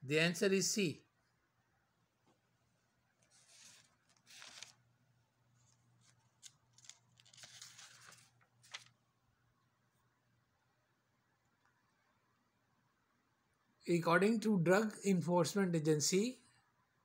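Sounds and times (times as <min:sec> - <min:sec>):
paper rustling and crinkling: 0:03.1 - 0:09.0.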